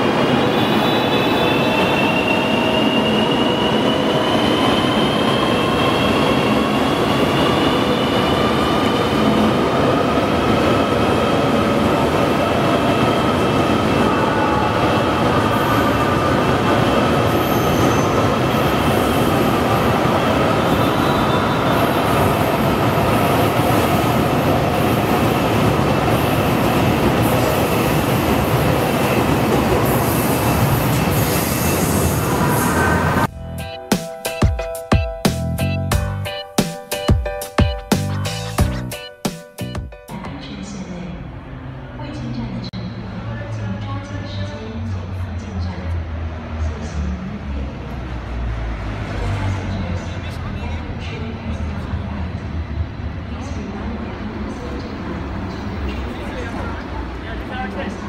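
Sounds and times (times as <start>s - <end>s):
electric train rumbling past: 0.0s - 37.1s.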